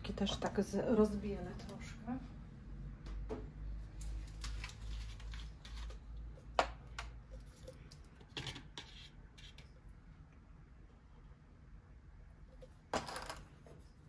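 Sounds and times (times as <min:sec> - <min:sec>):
art supplies clicking and rustling: 0:03.9 - 0:09.6.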